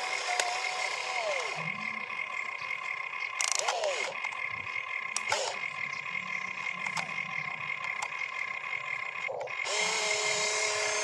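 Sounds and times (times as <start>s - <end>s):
electric motors whining: 0.0s - 11.0s
sharp clicks: 2.6s - 8.5s.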